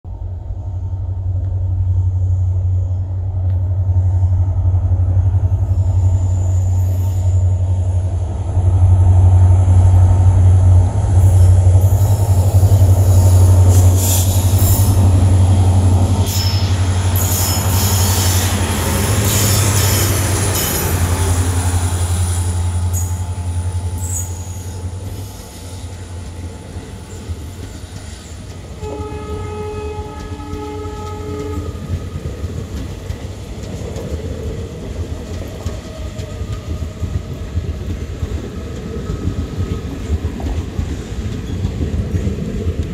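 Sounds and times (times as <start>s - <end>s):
diesel locomotive engine rumble: 0.0s - 42.9s
rail hiss: 0.1s - 29.3s
wheel squeal: 16.2s - 18.5s
train horn blasts: 28.8s - 32.0s.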